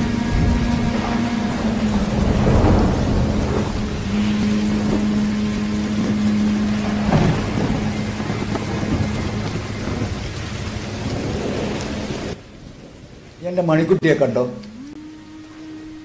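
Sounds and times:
steady low hum: 0.0s - 13.2s
low rolling thunder: 0.0s - 14.6s
rain hiss: 0.0s - 16.0s.

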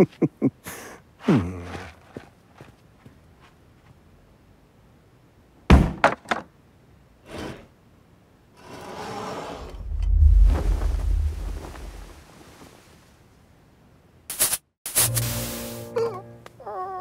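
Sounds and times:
cartoon thunks and knocks: 5.7s - 6.4s
rushing noise and deep rumble: 9.6s - 13.0s.

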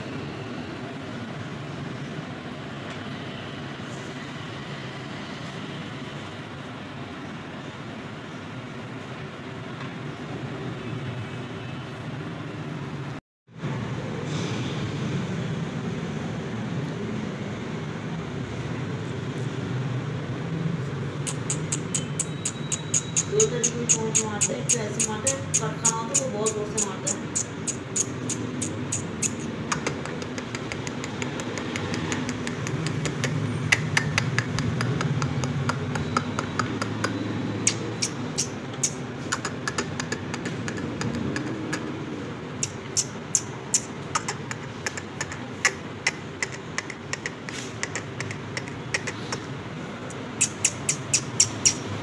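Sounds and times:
parrot beak and claws clicking: 21.2s - 42.0s, 42.6s - 49.5s, 50.1s - 52.0s.

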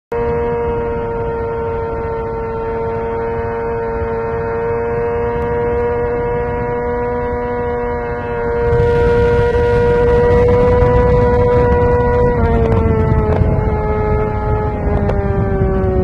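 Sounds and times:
motorcycle engine high-pitched whine: 0.1s - 16.0s
wind rushing: 8.5s - 16.0s.

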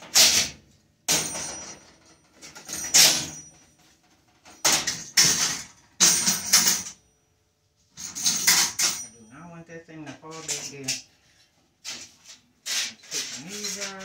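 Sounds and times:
metal clatters and scrapes: 8.0s - 9.1s, 10.2s - 14.0s.

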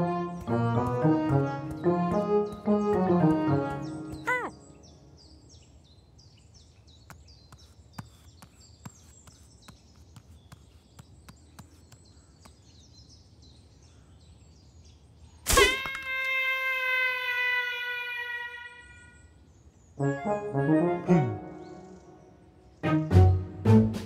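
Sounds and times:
orchestral music with brass note: 0.0s - 4.2s, 20.0s - 22.1s, 22.8s - 24.0s
bird chirps: 1.6s - 15.4s.

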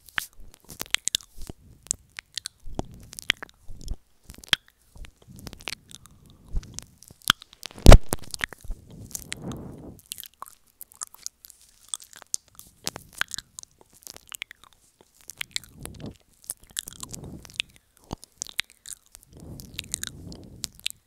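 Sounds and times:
lip smacks and tongue clicks: 0.0s - 21.0s
soft rushes of air: 8.7s - 10.0s, 16.9s - 17.6s, 19.3s - 20.7s.

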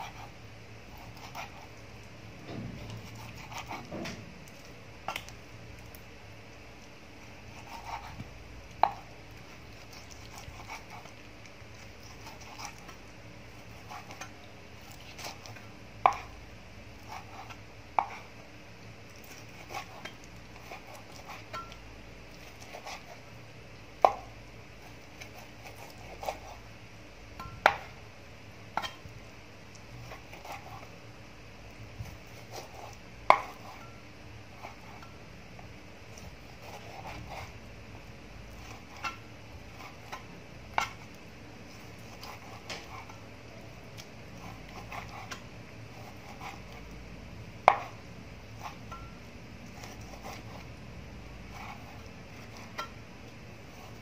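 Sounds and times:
cleaver chopping on wooden board: 47.7s - 48.0s.

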